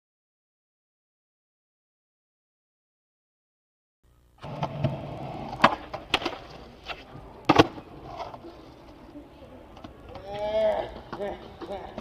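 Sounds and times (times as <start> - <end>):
skateboard deck clacking: 4.4 - 8.4
skateboard wheels rolling on concrete: 4.4 - 12.0.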